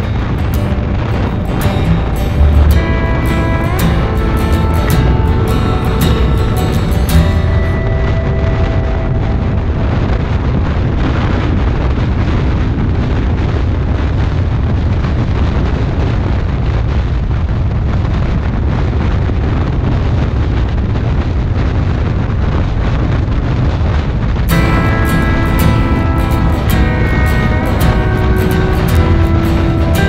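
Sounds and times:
motorcycle engine rumble: 0.0s - 11.9s, 24.5s - 30.0s
wind buffeting microphone: 0.0s - 30.0s.

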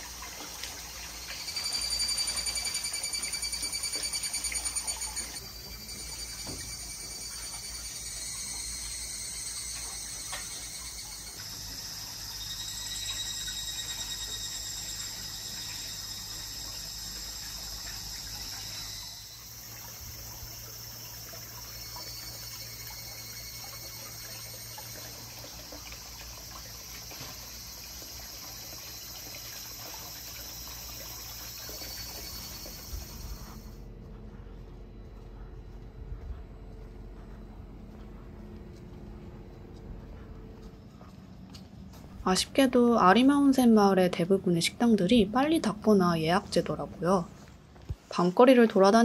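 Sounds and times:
insects shrilling: 1.0s - 33.8s.

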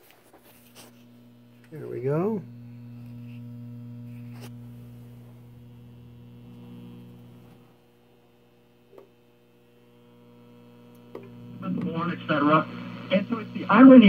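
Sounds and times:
radio hum: 0.0s - 14.0s
click: 10.9s - 11.9s.

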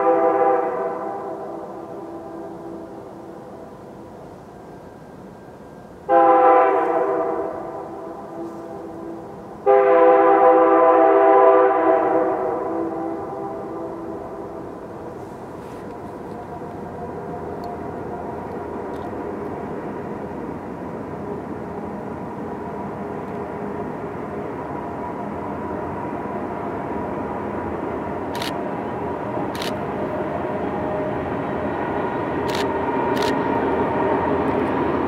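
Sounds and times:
distant train engine drone: 0.0s - 35.0s
sharp clicks: 32.5s - 33.4s.

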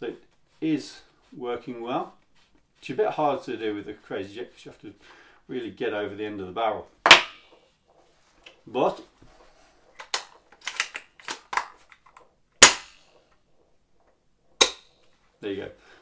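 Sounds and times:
person speaking: 0.0s - 7.0s, 8.4s - 9.2s.

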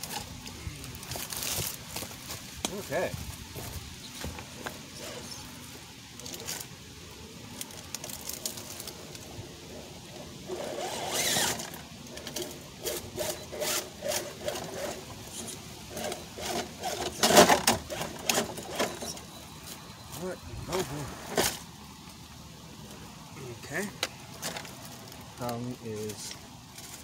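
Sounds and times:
small electric motor whirring: 10.2s - 19.8s
tyres scraping on rock: 10.2s - 21.7s.

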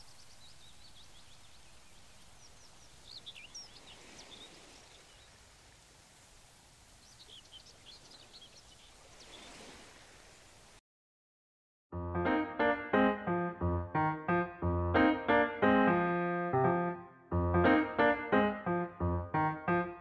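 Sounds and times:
small birds chirping: 0.0s - 5.4s, 6.9s - 9.7s
steady low hiss: 0.0s - 9.1s.

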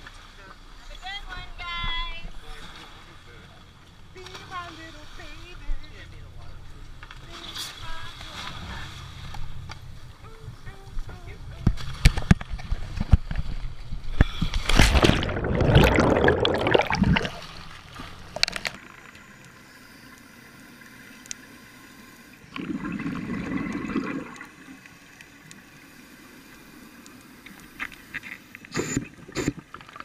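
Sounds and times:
water splash and rushing: 11.7s - 18.8s, 22.5s - 24.7s
muffled underwater hush: 14.1s - 18.6s
regulator bubbling: 14.8s - 17.6s, 22.5s - 24.5s.

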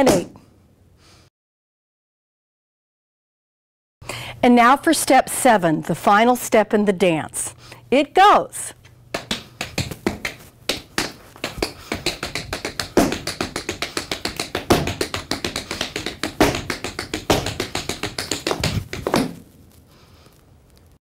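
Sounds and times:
tap shoes on wooden floor: 9.2s - 19.4s.

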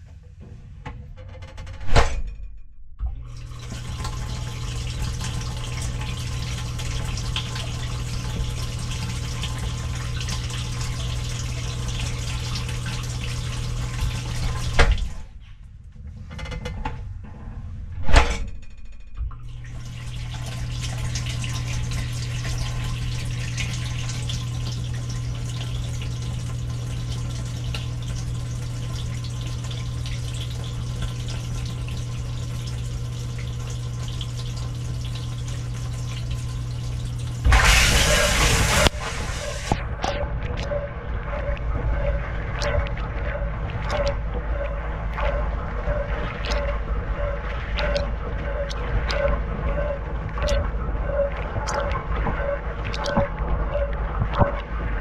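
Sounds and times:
dishwasher humming: 0.0s - 55.0s
water running: 3.2s - 15.4s, 19.4s - 55.0s
water spraying loudly: 37.4s - 39.8s.

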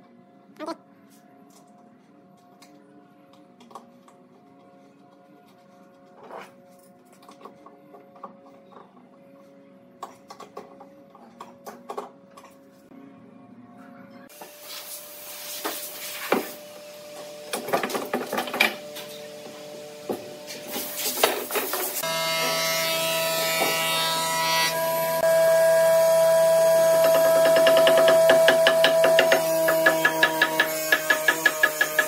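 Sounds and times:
mallet tapping chisel: 27.0s - 32.0s.

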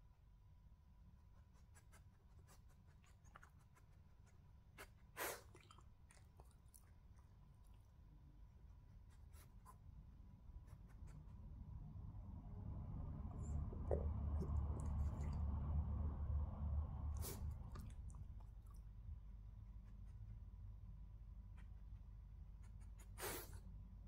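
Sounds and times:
dog chewing and licking: 2.9s - 4.3s, 5.4s - 7.9s, 17.3s - 18.8s.

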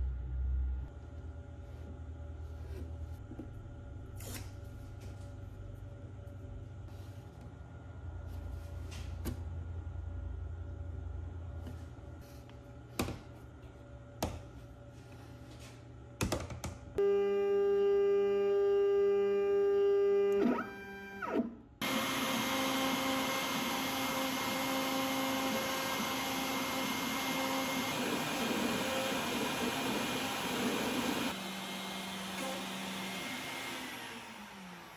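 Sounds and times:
router running: 17.0s - 34.9s
dust extraction running: 21.8s - 34.9s.

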